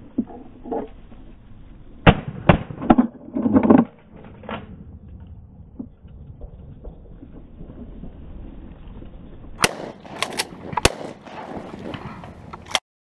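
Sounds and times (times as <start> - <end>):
shotgun shots: 9.6 - 12.8.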